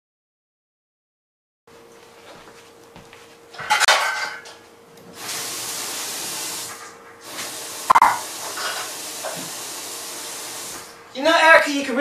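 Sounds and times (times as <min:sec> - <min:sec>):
dishes clattering: 0:03.6 - 0:04.6, 0:07.9 - 0:09.5
kitchen tap running into sink: 0:05.1 - 0:11.0.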